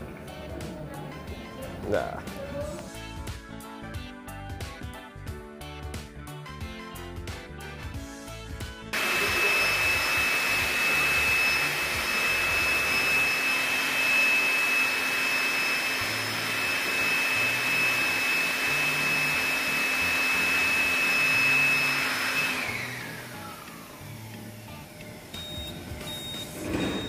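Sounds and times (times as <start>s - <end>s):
electric motor fan whining: 9.0s - 27.0s.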